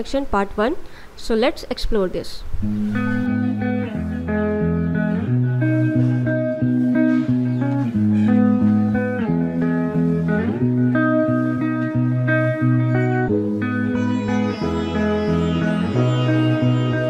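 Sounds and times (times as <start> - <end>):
instrumental music with held chords: 2.6 - 17.0
low bass line: 12.0 - 17.0.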